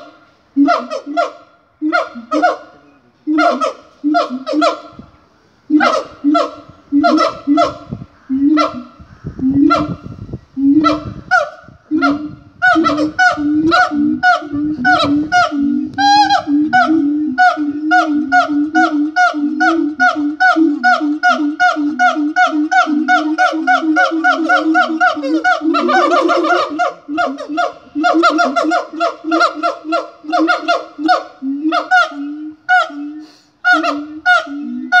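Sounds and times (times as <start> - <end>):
siamangs hooting: 10.7 - 35.0.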